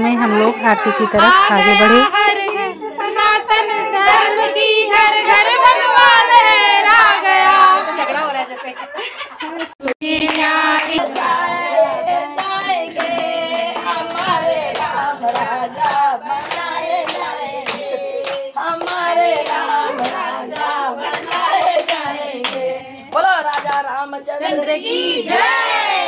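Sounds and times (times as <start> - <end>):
women singing devotional song: 0.0 - 26.0
rhythmic hand clapping: 0.4 - 4.3, 9.8 - 24.1.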